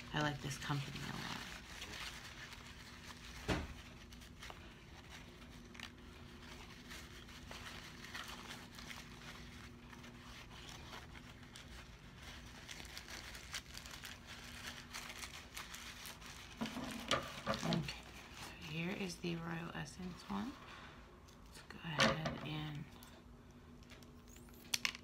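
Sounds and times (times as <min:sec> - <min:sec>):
paper towel rustling: 0:00.0 - 0:21.2.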